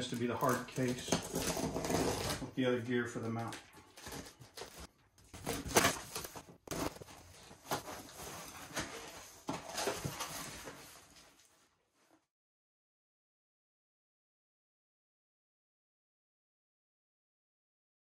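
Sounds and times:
cardboard scraping and rustling: 0:00.4 - 0:02.5, 0:04.0 - 0:11.5.

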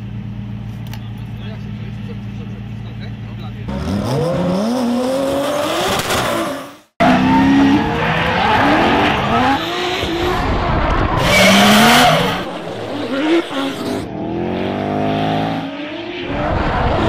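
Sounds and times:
car engines revving: 0:00.0 - 0:17.0
tyres screeching: 0:03.7 - 0:14.0.

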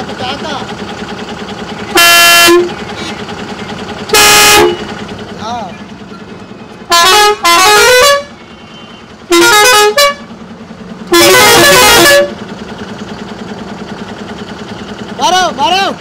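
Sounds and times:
musical air horn blasts: 0:01.9 - 0:02.8, 0:04.1 - 0:04.9, 0:06.9 - 0:10.3, 0:11.1 - 0:12.4.

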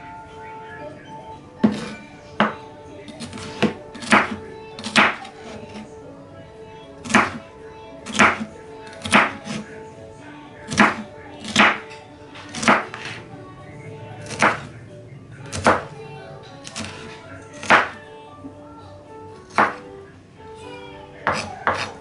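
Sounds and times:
background music: 0:00.0 - 0:22.0
knife chopping on wooden board: 0:08.1 - 0:09.6, 0:10.7 - 0:11.8, 0:14.2 - 0:14.7, 0:19.5 - 0:19.8, 0:21.3 - 0:21.9.

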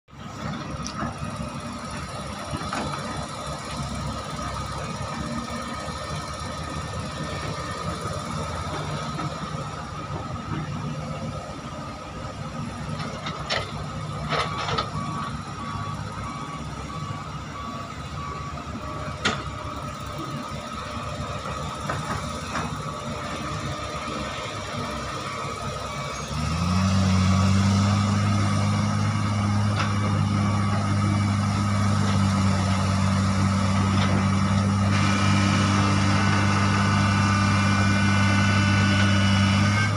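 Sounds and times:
diesel engines running: 0:00.1 - 0:39.9.

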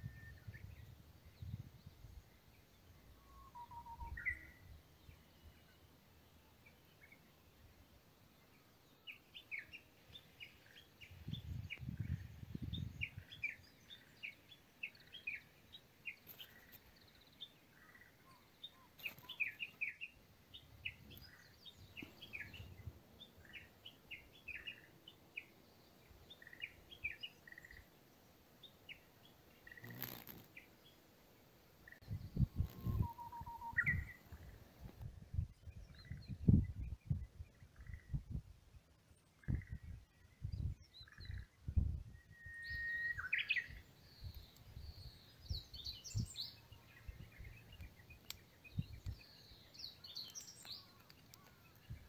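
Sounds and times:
small birds chirping: 0:00.0 - 0:52.0.

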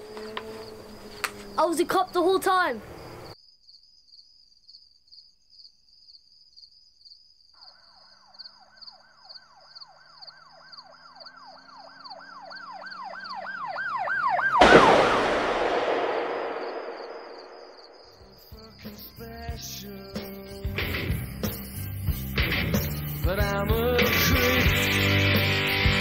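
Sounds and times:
crickets chirping: 0:00.0 - 0:13.8, 0:15.4 - 0:25.6
siren wailing in a fast yelp: 0:08.9 - 0:15.2
loud bang: 0:14.6 - 0:18.1.

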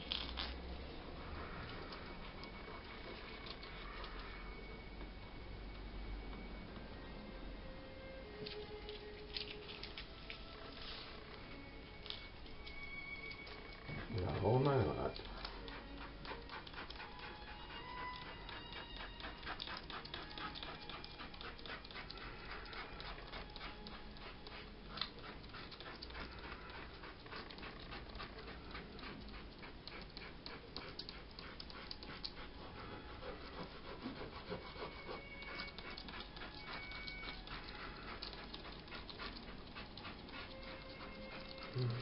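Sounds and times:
hand rubbing paper: 0:08.5 - 0:11.5, 0:19.1 - 0:41.8.

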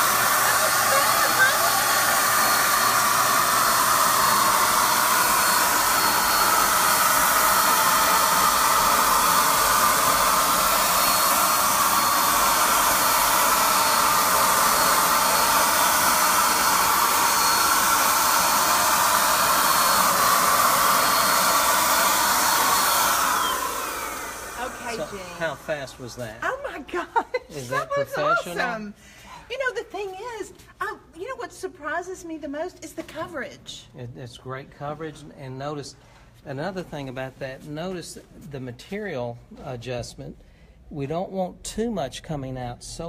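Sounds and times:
electric paint sprayer running: 0:00.0 - 0:25.9.

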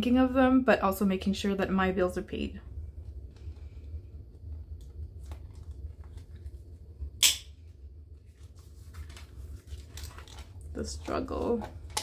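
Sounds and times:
plastic envelope rustling: 0:08.1 - 0:12.0.

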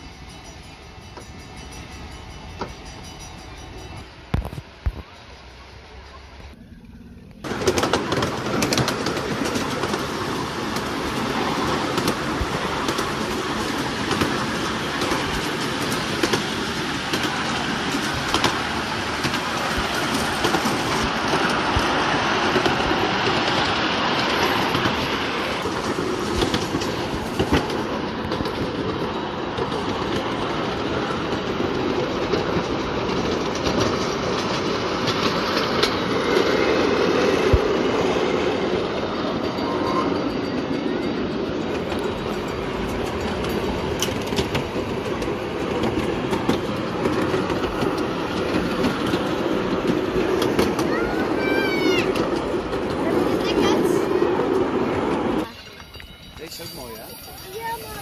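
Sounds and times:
model train wheels clattering: 0:07.4 - 0:30.4.

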